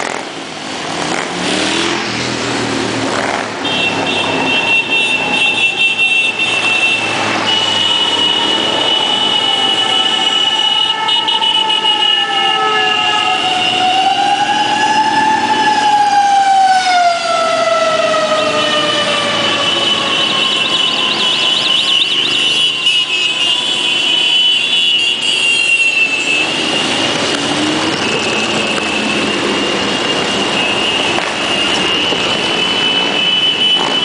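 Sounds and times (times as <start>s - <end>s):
siren wailing: 5.1s - 24.7s, 26.0s - 34.0s.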